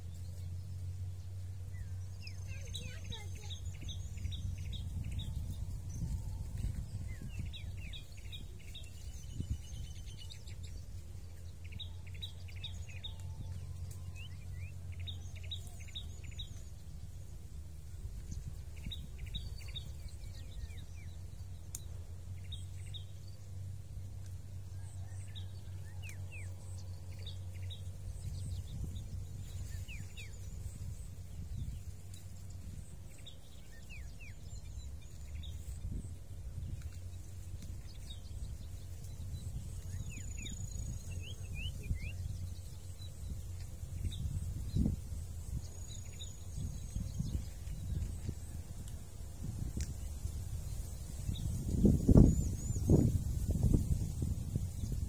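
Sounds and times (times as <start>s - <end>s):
birds chirping: 0.0s - 55.0s
low outdoor rumble: 0.0s - 55.0s.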